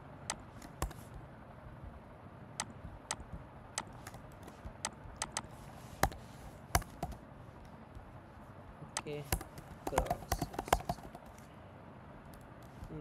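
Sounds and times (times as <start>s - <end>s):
computer keyboard typing: 0.3s - 1.2s, 2.6s - 8.1s, 8.9s - 11.4s.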